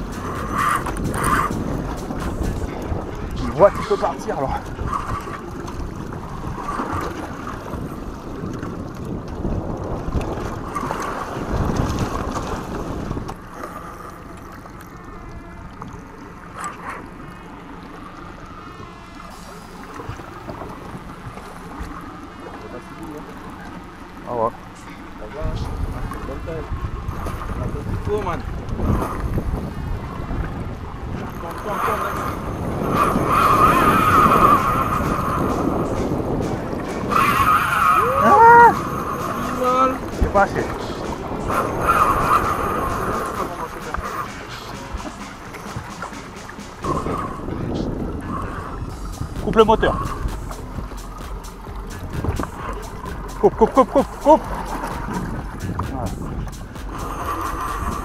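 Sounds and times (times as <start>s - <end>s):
outboard motor running: 0.0s - 58.0s
wind buffeting microphone: 0.0s - 58.0s
steady high whine: 13.2s - 27.6s, 30.9s - 58.0s.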